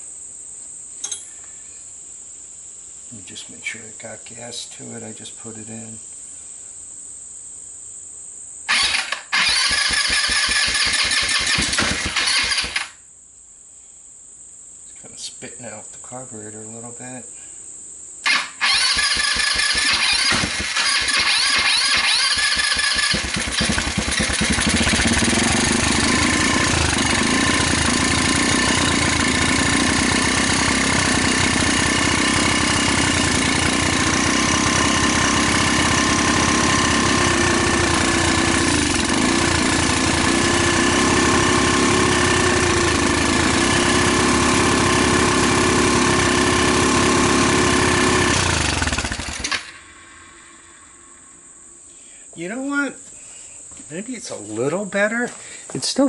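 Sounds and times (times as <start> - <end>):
atv engine running: 8.7 - 12.9, 18.3 - 50.8.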